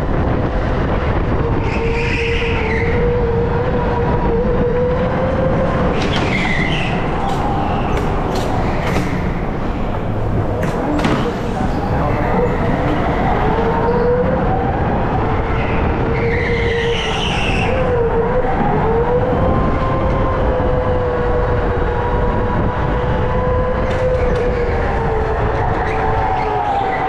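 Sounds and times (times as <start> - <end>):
go-kart motor whine: 1.1 - 27.0
tyre squeal: 5.9 - 14.2.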